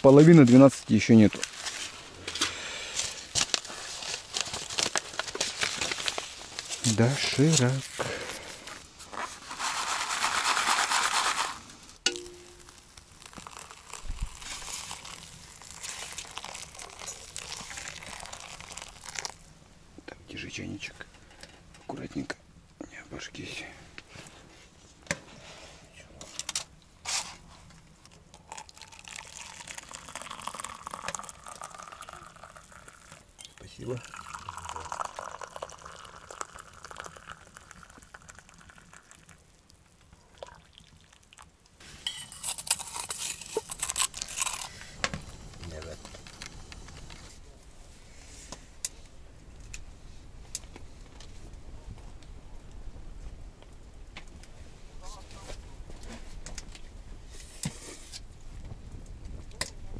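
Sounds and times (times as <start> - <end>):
water pouring onto dry noodles: 12.6 - 19.4, 28.3 - 41.5
spoon scraping in a tin can: 41.9 - 44.8.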